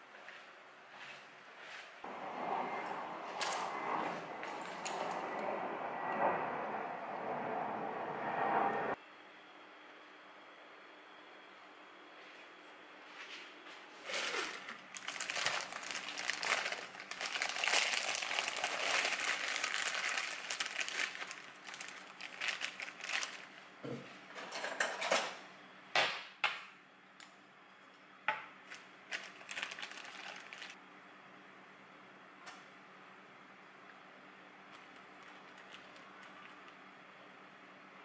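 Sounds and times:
plastic bag crinkling: 14.0s - 23.6s, 28.7s - 30.8s, 34.8s - 36.7s.

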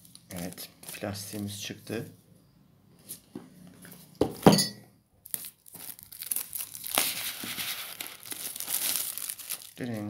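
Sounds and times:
plastic wrap crinkling: 0.0s - 1.3s, 5.2s - 10.0s.

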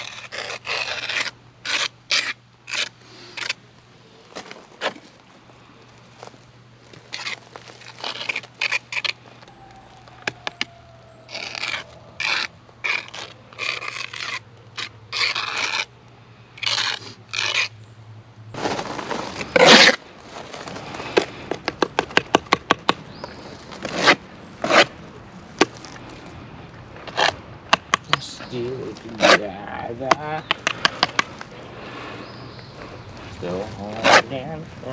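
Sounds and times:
trowel scraping mortar on stone: 0.0s - 3.6s, 7.0s - 9.2s, 11.3s - 16.0s, 16.6s - 17.8s, 19.4s - 20.0s, 23.8s - 24.9s, 28.9s - 31.3s, 33.4s - 34.4s.

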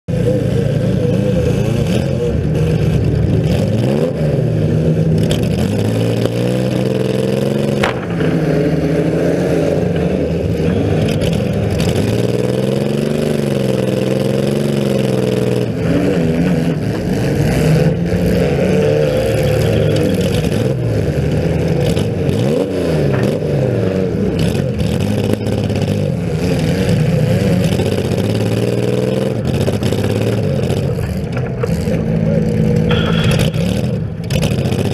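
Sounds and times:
car engine revving: 0.1s - 34.9s
sharp knocks: 7.8s - 9.0s, 32.9s - 33.9s.

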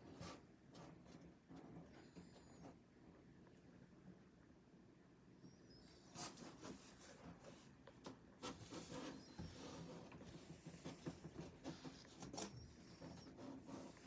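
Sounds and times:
cat paws scratching cardboard: 6.0s - 14.0s.

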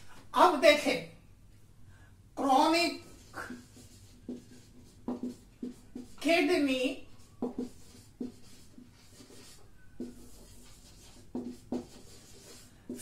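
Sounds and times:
marker writing on whiteboard: 2.4s - 13.0s
marker squeak: 3.2s - 12.6s.

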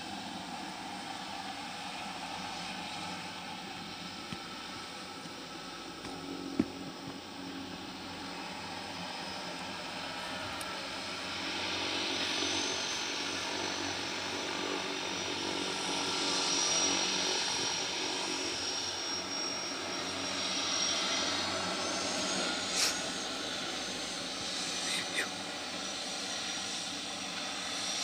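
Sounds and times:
propeller drone: 0.0s - 28.0s
turbine whine: 0.0s - 28.0s.

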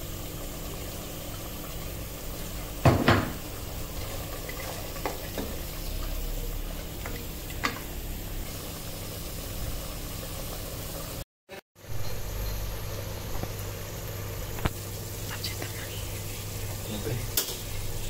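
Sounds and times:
curry bubbling in a pot: 0.0s - 11.2s.

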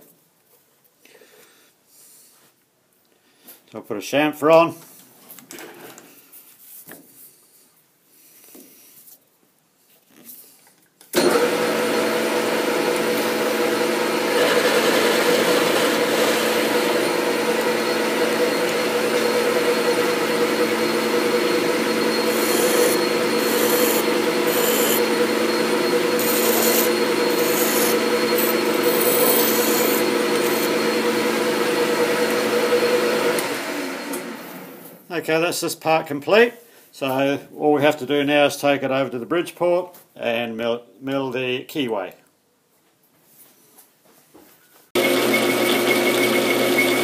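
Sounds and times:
metal lathe hum and whine: 11.2s - 34.8s, 45.0s - 47.0s
file rasping on steel: 22.1s - 25.2s, 26.2s - 30.8s.

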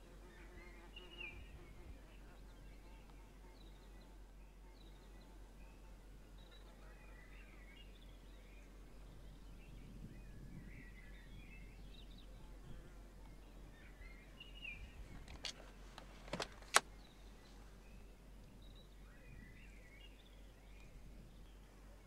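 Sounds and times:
faint birdsong: 0.0s - 22.0s
seatbelt clicking: 15.2s - 16.9s.

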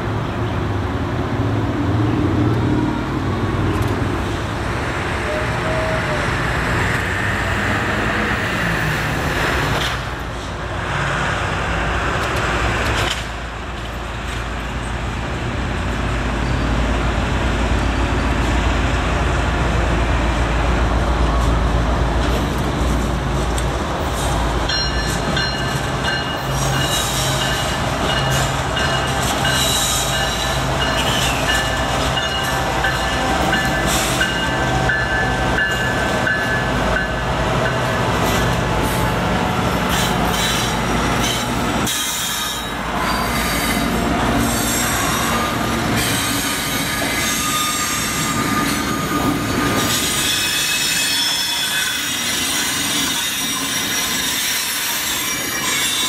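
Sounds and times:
diesel locomotive drone: 0.0s - 56.0s
train wheels squealing: 24.1s - 37.2s, 39.9s - 56.0s.

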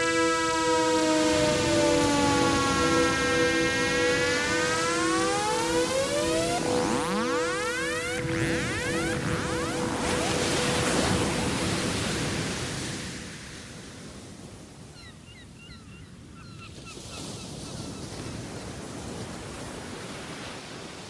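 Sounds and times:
held music tones: 0.0s - 12.3s
ocean surf on a beach: 0.0s - 14.9s, 17.0s - 21.0s.

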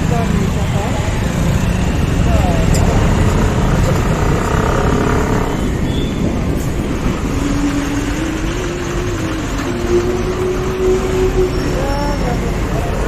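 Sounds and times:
motorcycle engine: 0.0s - 13.0s
road noise: 0.0s - 13.0s.

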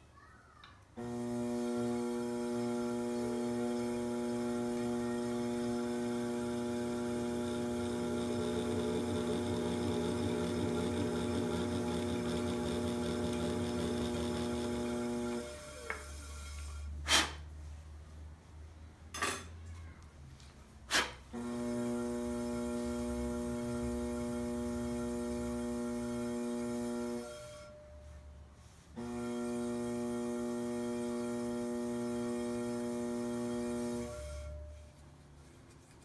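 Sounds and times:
pottery wheel motor humming: 1.0s - 16.9s, 21.3s - 27.8s, 29.0s - 34.9s.

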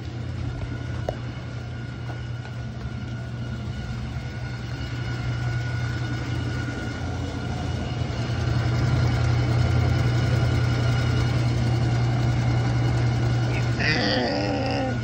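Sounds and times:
washing machine humming: 0.0s - 15.0s.

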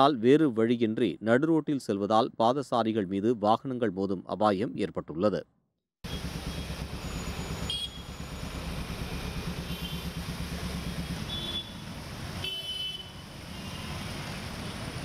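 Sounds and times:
horn toots: 6.1s - 10.2s, 10.8s - 13.8s
vehicle engines rumbling: 6.1s - 15.0s.

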